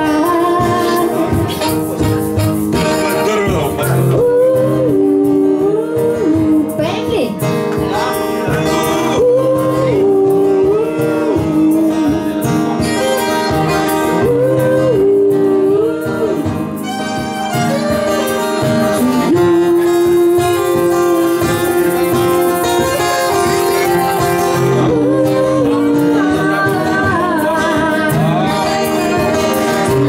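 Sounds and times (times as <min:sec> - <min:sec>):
acoustic guitars: 0:00.0 - 0:30.0
harmonica: 0:00.2 - 0:05.4, 0:08.6 - 0:27.0
violin: 0:10.6 - 0:30.0.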